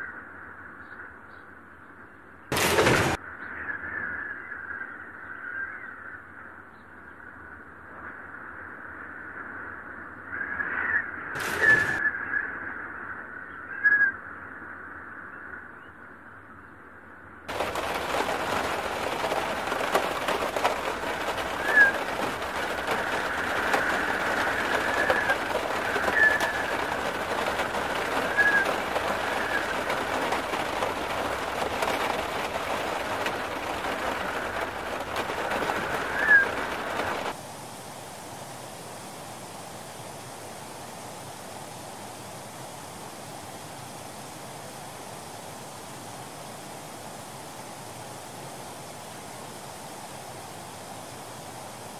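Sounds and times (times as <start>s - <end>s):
wind: 0.0s - 51.9s
heavy rain hissing: 2.5s - 3.2s, 11.4s - 12.0s, 17.5s - 51.9s
rush of water: 2.5s - 3.2s, 11.4s - 12.0s, 17.5s - 51.9s.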